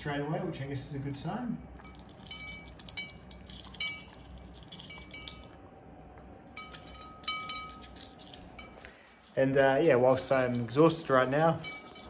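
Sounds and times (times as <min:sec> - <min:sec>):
kibble clinking against metal bowl: 0:01.8 - 0:05.6, 0:06.5 - 0:12.0.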